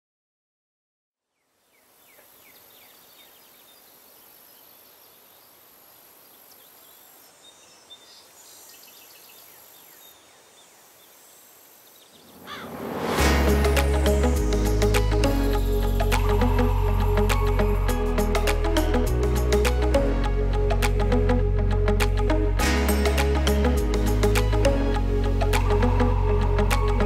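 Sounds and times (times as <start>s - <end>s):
bird chirps: 1.4s - 12.9s
steady hiss: 1.7s - 19.8s
rising whoosh: 12.1s - 18.6s
loud music with deep bass: 13.2s - 27.0s.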